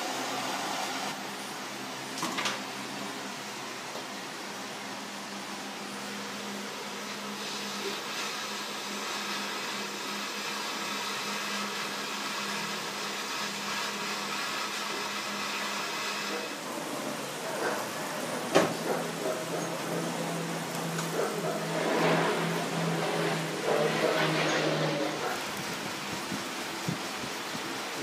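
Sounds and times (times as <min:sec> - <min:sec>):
butane torch hissing: 0:06.5 - 0:28.0.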